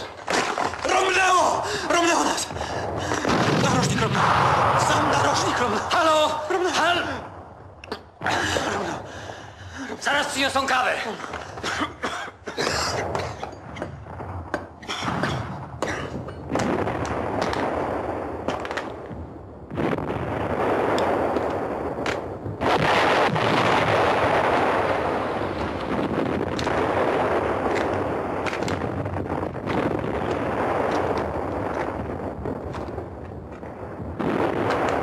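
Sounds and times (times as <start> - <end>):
artillery explosions: 0.0 - 9.1, 11.3 - 35.0
gunfire: 2.5 - 6.6, 12.9 - 35.0.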